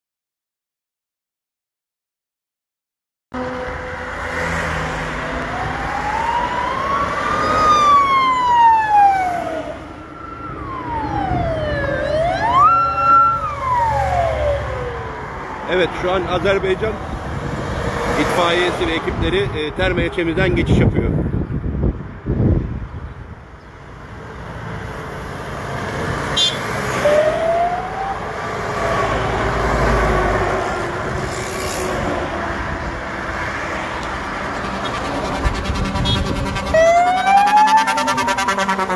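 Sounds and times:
siren wailing: 0:03.4 - 0:16.0, 0:27.0 - 0:29.2, 0:34.5 - 0:38.9
heavy vehicle engines rumbling: 0:03.4 - 0:38.9.

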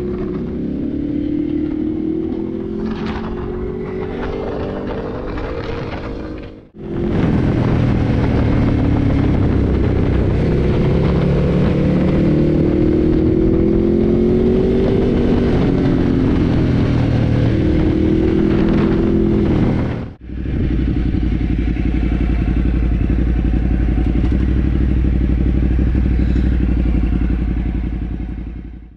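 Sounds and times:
motorcycle engine revving: 0:00.0 - 0:28.9
motorcycle engine idling: 0:20.2 - 0:28.9.

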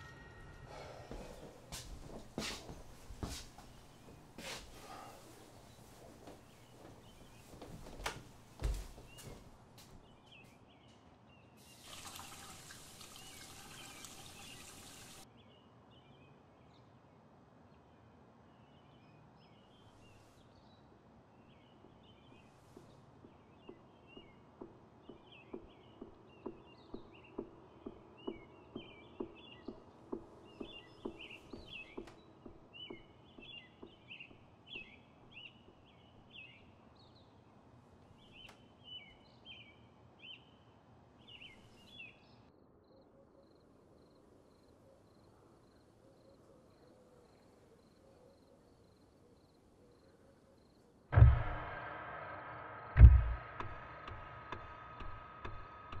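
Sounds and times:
birds chirping: 0:00.0 - 0:16.9, 0:17.9 - 0:42.4
water running into a glass: 0:11.7 - 0:15.2
steady knocking: 0:22.8 - 0:34.4, 0:53.0 - 0:56.0.

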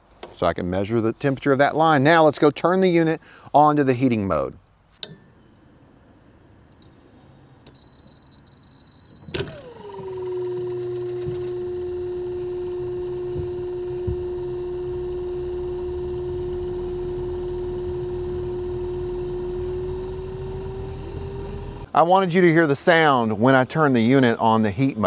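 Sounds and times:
sliding tone: 0:05.0 - 0:21.9
low running hum: 0:05.1 - 0:21.9
high electronic whine: 0:05.4 - 0:21.9.

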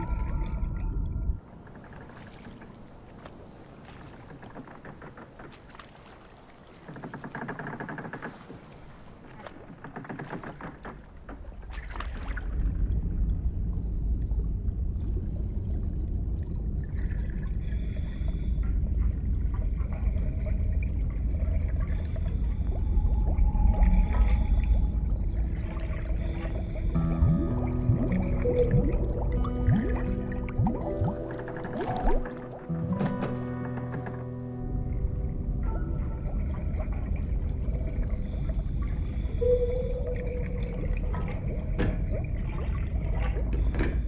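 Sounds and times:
water lapping and splashing: 0:00.0 - 0:34.6, 0:35.6 - 0:44.0
deep underwater rumble: 0:11.1 - 0:32.7, 0:33.5 - 0:44.0.

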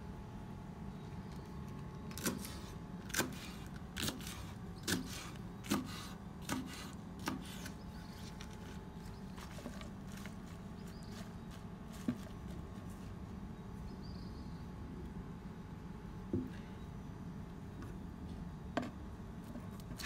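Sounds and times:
faint steady hum: 0:00.0 - 0:20.0
knife chopping on wooden board: 0:02.2 - 0:07.8.

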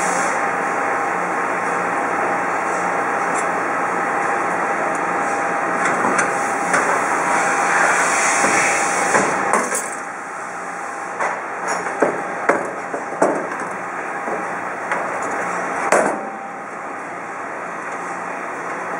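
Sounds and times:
machine hum with faint whine: 0:00.0 - 0:18.9.

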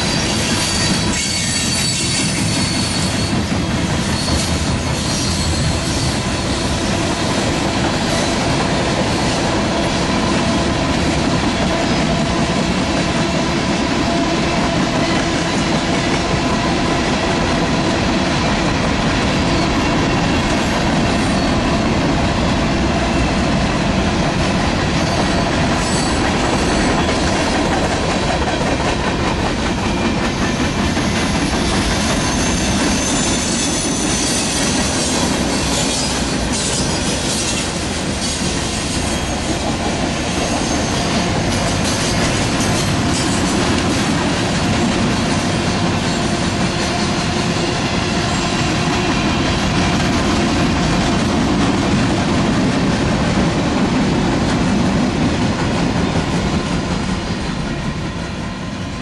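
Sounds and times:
high wheel squeal: 0:00.0 - 0:03.4, 0:04.0 - 0:06.7, 0:25.0 - 0:27.1, 0:31.0 - 0:39.6
train wheels rumbling on rail: 0:00.0 - 0:59.0.

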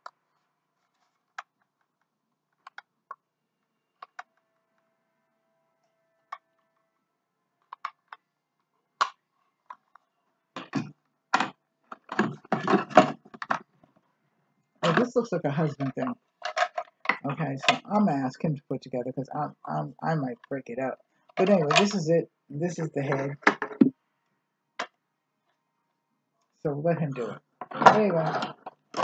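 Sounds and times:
hard plastic parts clicking: 0:10.6 - 0:13.8, 0:16.4 - 0:17.9.

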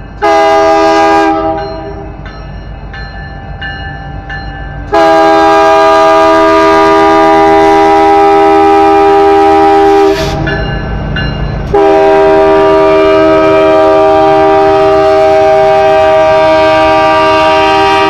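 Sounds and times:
low noise of passing train: 0:00.0 - 0:18.0
locomotive air horn chord: 0:00.2 - 0:02.0, 0:04.9 - 0:10.4, 0:11.7 - 0:18.0.

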